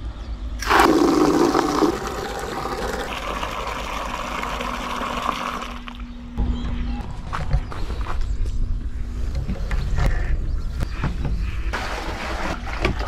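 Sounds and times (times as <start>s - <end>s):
tap water running into a bucket: 0.6s - 6.0s.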